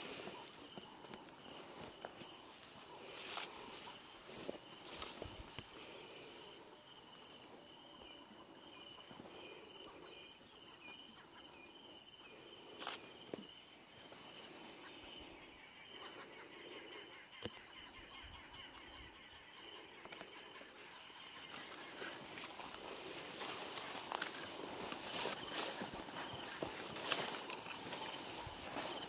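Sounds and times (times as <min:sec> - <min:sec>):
footsteps through tall grass: 0:00.0 - 0:06.6, 0:20.8 - 0:29.0
insect chirping: 0:00.0 - 0:29.0.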